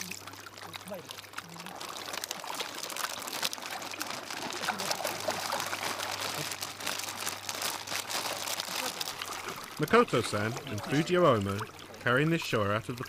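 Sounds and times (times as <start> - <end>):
water sloshing in a tub: 0.0 - 13.0.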